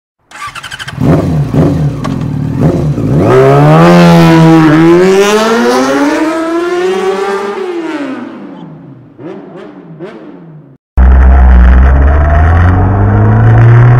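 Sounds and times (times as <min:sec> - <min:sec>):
motorcycle engine revving: 0:00.3 - 0:13.9.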